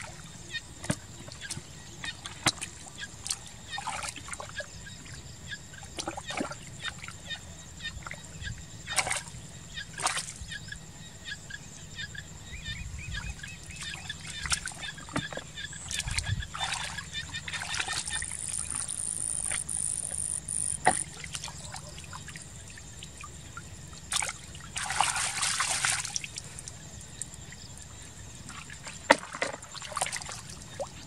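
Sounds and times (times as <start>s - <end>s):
splashing in shallow muddy water: 0.0s - 4.7s, 5.9s - 7.2s, 8.9s - 9.4s, 10.0s - 10.4s, 13.3s - 31.0s.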